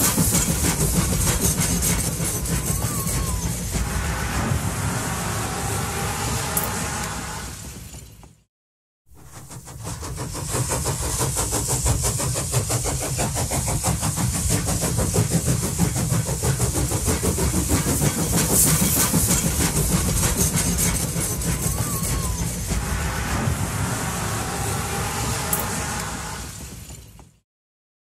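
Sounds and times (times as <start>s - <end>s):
vehicle running: 18.8s - 26.8s.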